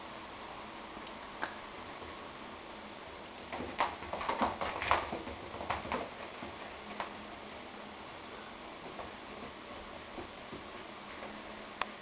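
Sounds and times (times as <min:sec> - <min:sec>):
cat's paws scrabbling on floor: 0:03.4 - 0:07.7, 0:08.8 - 0:11.4.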